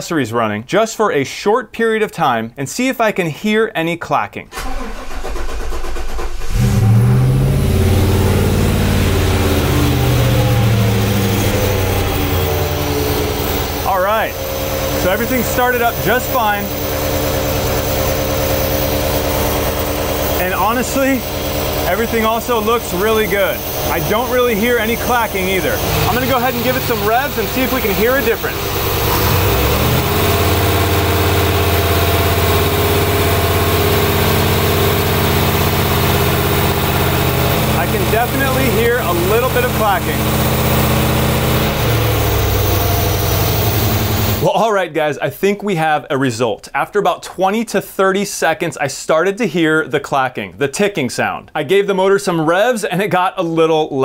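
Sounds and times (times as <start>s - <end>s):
car engine idling: 4.6s - 44.5s.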